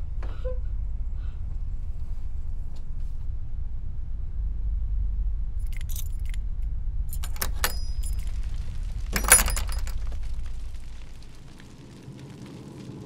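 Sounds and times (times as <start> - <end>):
low rumbling drone: 3.3 - 8.2
keys jangling: 5.6 - 6.4, 7.1 - 8.5, 9.1 - 10.2.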